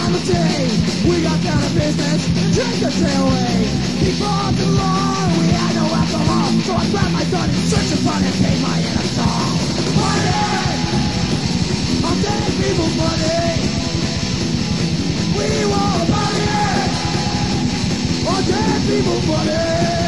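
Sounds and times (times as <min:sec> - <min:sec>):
punk rock song: 0:00.0 - 0:20.0
shouted vocal: 0:08.9 - 0:11.4, 0:15.4 - 0:17.6.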